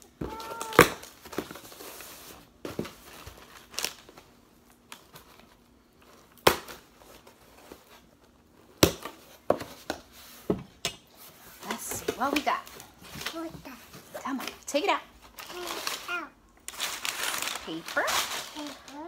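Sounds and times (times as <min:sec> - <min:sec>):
packing tape slicing and tearing: 0:00.3 - 0:01.2, 0:15.4 - 0:19.0.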